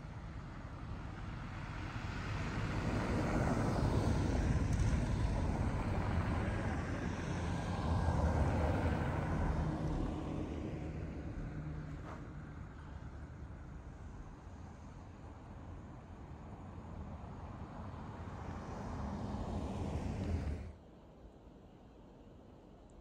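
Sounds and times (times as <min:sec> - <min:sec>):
vehicle engine rumble passing: 0:18.0 - 0:20.7.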